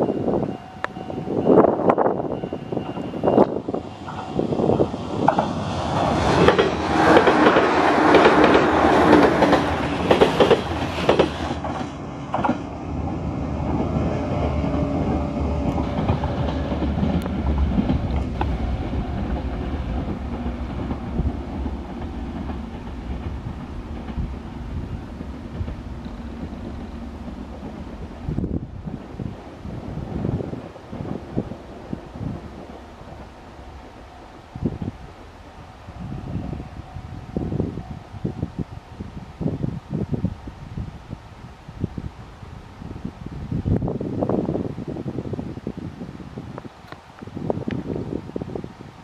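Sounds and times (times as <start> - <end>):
electric train passing at speed: 0.0 - 49.0
wheels clacking over rail joints: 4.0 - 12.8, 13.6 - 29.5.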